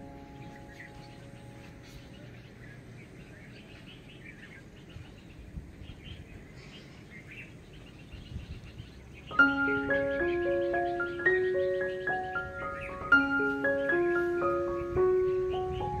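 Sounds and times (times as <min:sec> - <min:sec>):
outdoor background hiss: 0:00.0 - 0:16.0
small birds chirping: 0:00.0 - 0:16.0
glockenspiel-like mallet music: 0:09.3 - 0:16.0.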